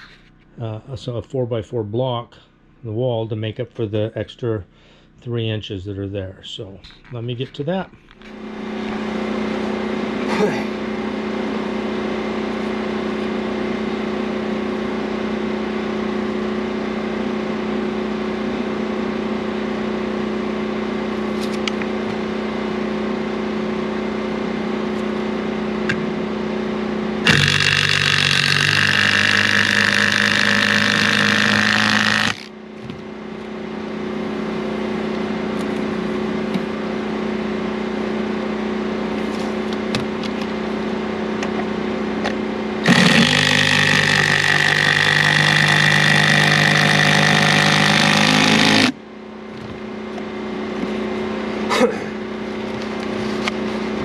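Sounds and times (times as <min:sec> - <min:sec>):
steady engine-like hum: 0:00.0 - 0:54.0
cordless drill driving screw into wood: 0:27.3 - 0:32.5, 0:42.8 - 0:48.9.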